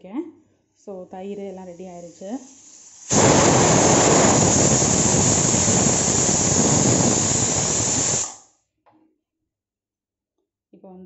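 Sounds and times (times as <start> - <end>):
pressure cooker whistling: 2.1 - 8.4.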